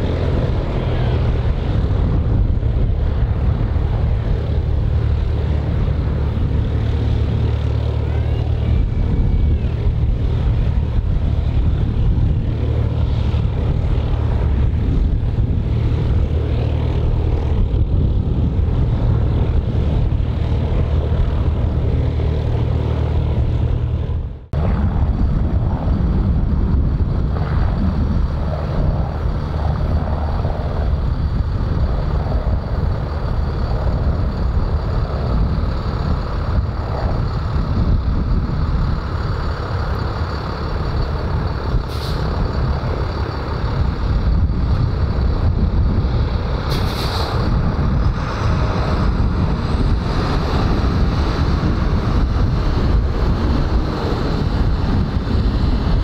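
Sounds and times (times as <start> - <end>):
aircraft engine rumble: 0.0 - 56.0
brief hisses: 46.7 - 47.3.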